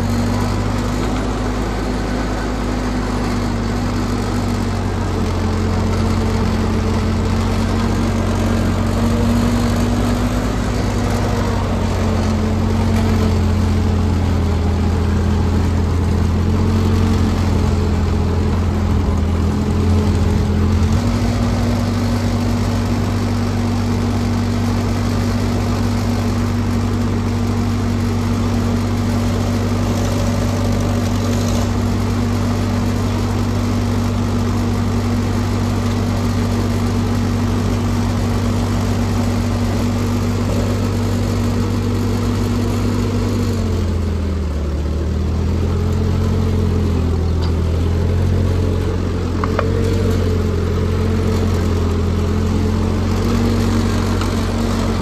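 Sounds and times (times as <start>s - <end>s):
tractor engine idling: 0.0s - 55.0s.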